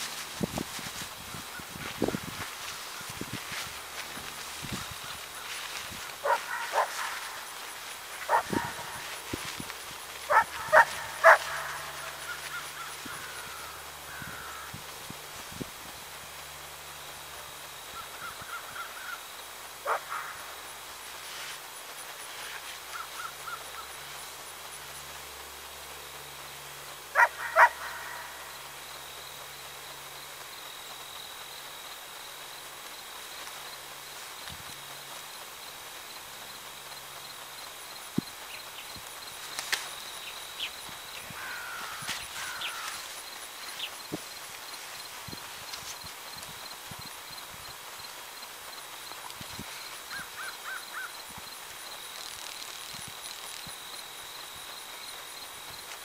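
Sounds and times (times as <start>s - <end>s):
faint steady background noise: 0.0s - 56.0s
animal calling: 5.0s - 9.3s, 10.3s - 14.6s, 27.2s - 28.5s.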